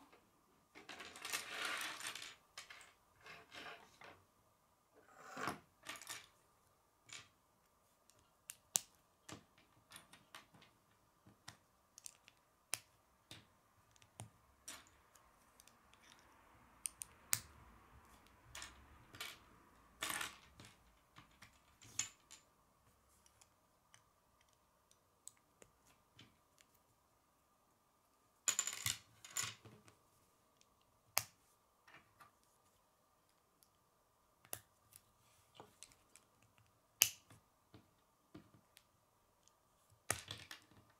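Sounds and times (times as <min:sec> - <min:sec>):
plastic pieces clicking and snapping: 0:11.4 - 0:16.2.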